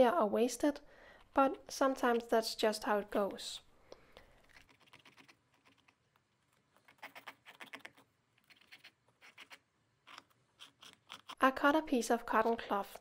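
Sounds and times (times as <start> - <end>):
scalpel scraping paper: 4.4 - 11.5.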